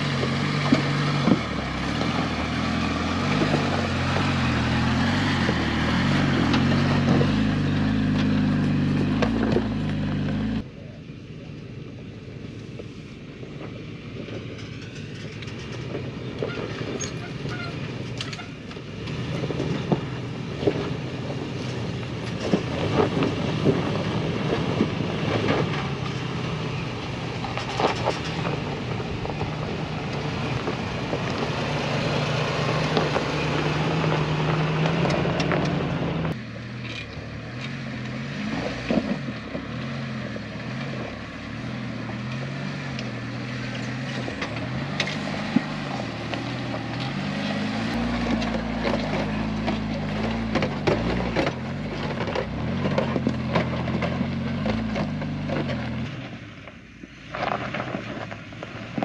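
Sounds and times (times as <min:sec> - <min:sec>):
vehicle engines at low speed: 0:00.0 - 0:59.0
tyres crunching over stones: 0:27.2 - 0:40.0, 0:42.1 - 0:59.0.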